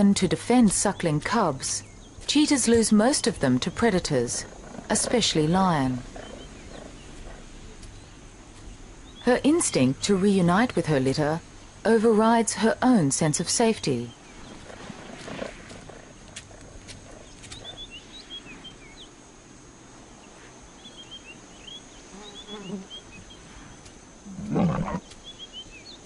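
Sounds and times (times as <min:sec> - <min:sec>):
small birds chirping: 0:00.0 - 0:11.2, 0:13.8 - 0:19.3, 0:20.1 - 0:26.0
big cat growling: 0:05.9 - 0:07.5, 0:24.2 - 0:25.1
big cat snarl: 0:14.6 - 0:17.8, 0:24.3 - 0:25.0.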